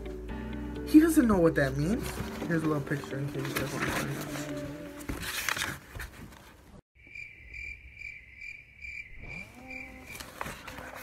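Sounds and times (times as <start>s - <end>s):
paper pages rustling: 1.6s - 6.8s, 10.0s - 11.0s
cricket chirping: 7.0s - 10.3s.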